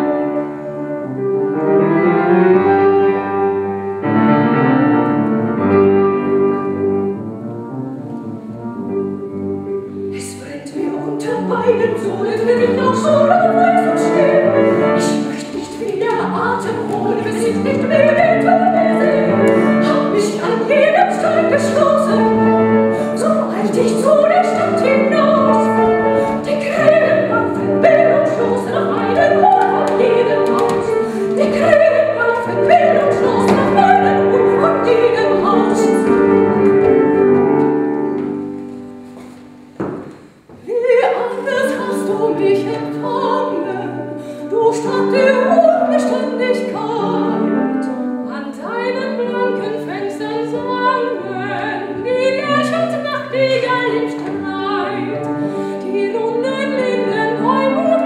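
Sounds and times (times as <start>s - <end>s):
voices singing operatic style: 10.8s - 36.3s.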